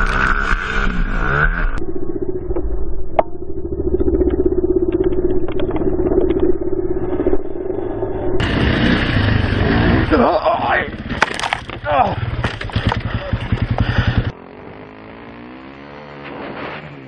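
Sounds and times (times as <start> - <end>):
dirt bike engine at high revs: 0.0 - 1.8, 8.4 - 17.0
brighter dirt bike engine: 0.0 - 17.0.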